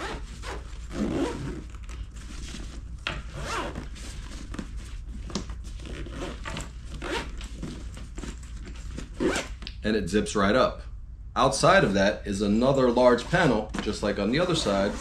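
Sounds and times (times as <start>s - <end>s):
zipper being pulled closed: 0.0s - 2.6s, 3.2s - 4.6s, 5.8s - 8.4s, 9.0s - 9.6s.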